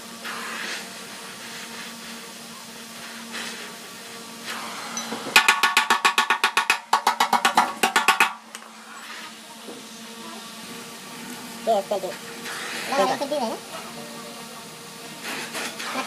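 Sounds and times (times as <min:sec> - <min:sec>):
hammer tapping on metal: 0:05.0 - 0:08.4.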